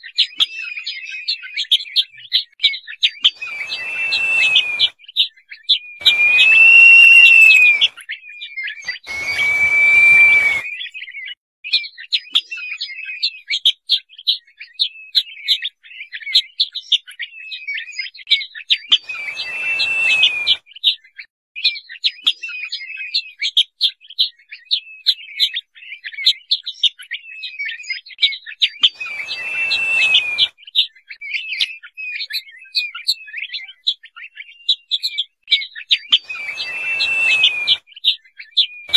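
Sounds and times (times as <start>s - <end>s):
bird whistling: 3.3s - 4.9s, 6.0s - 8.0s, 8.8s - 10.9s, 19.0s - 20.6s, 28.9s - 30.5s, 36.1s - 37.8s
short high chirps: 3.4s - 4.9s, 6.0s - 7.9s, 29.0s - 30.5s, 36.3s - 37.8s.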